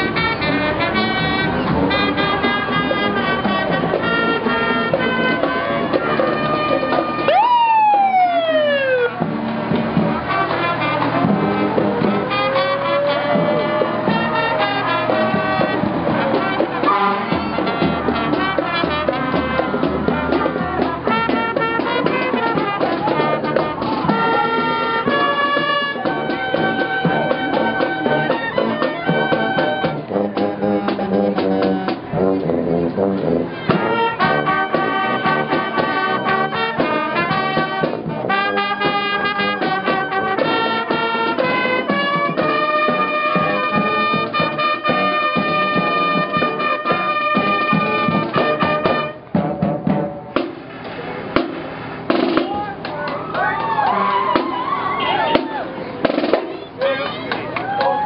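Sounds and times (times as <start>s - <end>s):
marching band brass music: 0.0s - 58.0s
fire engine siren whoop: 7.2s - 9.2s, 12.3s - 15.0s, 53.0s - 55.6s, 57.6s - 58.0s.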